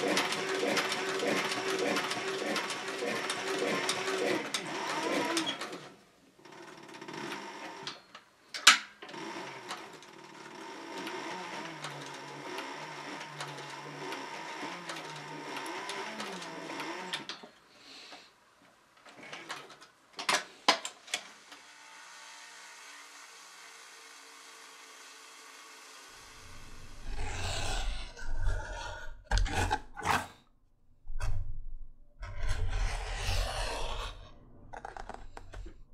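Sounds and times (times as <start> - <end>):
sewing machine needle strokes: 0.0 - 5.7
sewing machine motor hum: 0.0 - 7.9, 9.1 - 17.3, 21.4 - 28.2.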